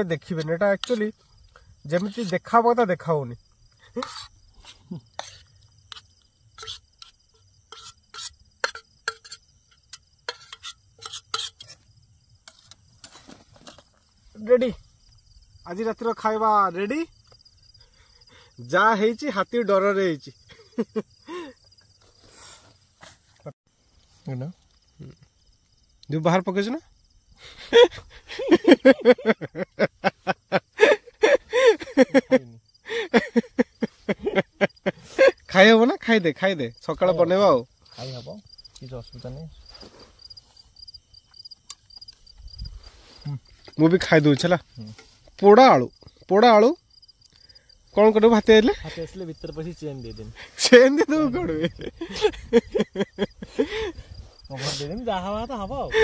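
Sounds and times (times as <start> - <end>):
crickets trilling: 0.0 - 56.0
metal spoon scraping a pan: 3.9 - 14.0.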